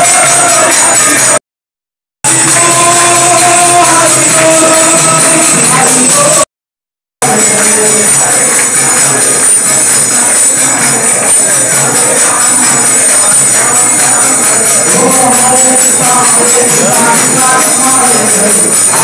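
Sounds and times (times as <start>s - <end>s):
hand cymbals jingling: 7.2s - 19.0s.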